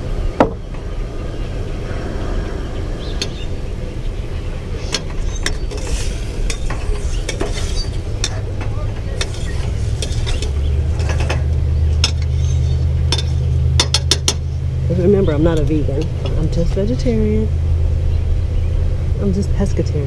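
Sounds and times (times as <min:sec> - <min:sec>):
low rumble: 0:00.0 - 0:20.0
metal utensils scraping a saucepan: 0:04.8 - 0:14.4.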